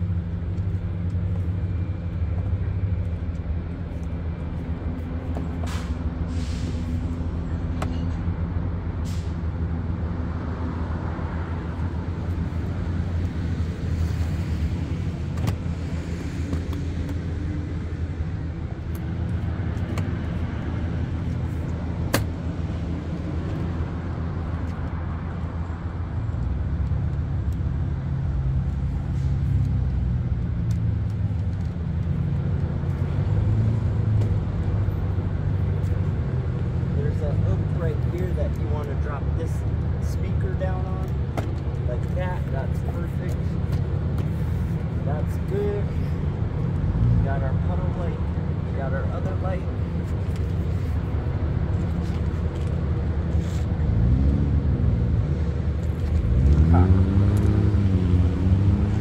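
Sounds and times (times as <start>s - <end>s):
vehicle engine humming: 0.0s - 59.0s.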